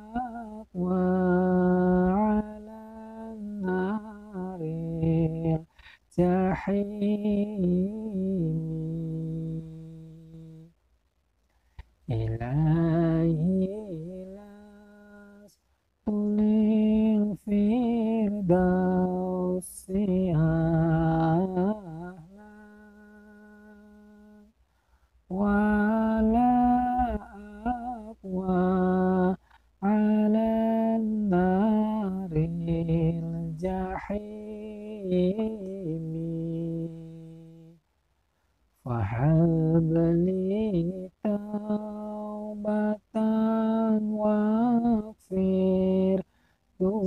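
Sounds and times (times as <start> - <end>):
man chanting: 12.1 - 15.5, 38.9 - 46.2.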